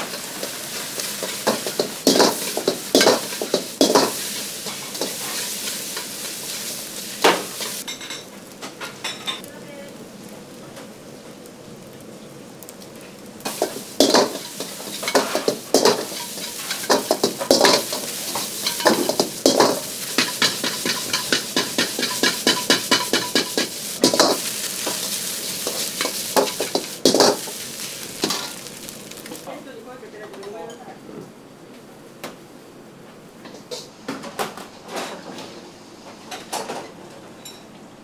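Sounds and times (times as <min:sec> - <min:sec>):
rice sizzling in a wok: 0:00.0 - 0:29.6
metal ladle scraping a wok: 0:13.6 - 0:28.6.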